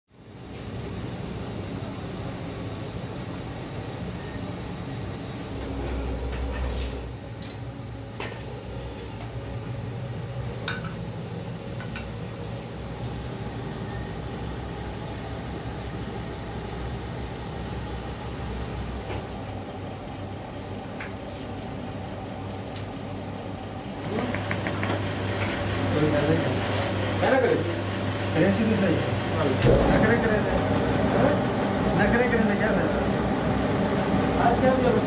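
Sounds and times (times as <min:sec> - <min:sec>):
short hiss: 0:06.7 - 0:07.1.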